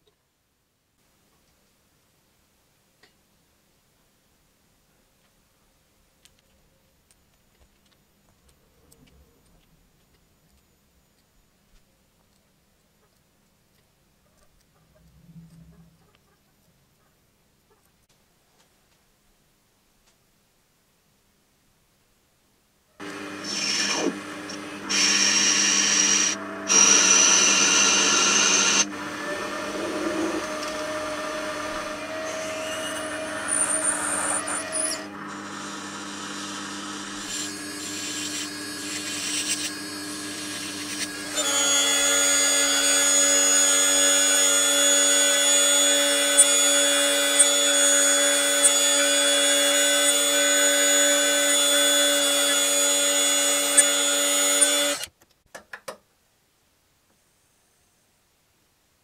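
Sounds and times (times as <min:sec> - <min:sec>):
lathe cutting brass: 0:23.0 - 0:55.0
high-pitched rotary tool cutting: 0:23.0 - 0:55.1.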